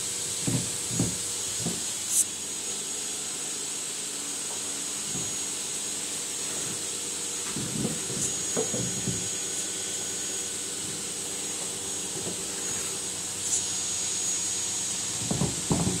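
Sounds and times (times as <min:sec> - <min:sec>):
high-pitched hiss: 0:00.0 - 0:06.8
faint high whine: 0:01.3 - 0:15.4.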